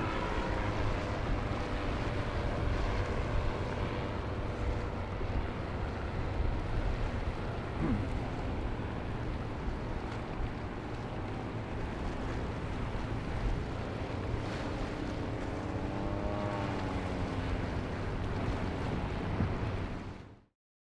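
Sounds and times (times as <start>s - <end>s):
surf: 0.0s - 20.4s
small engine drone: 0.0s - 20.5s
wind rumble on microphone: 0.0s - 20.5s.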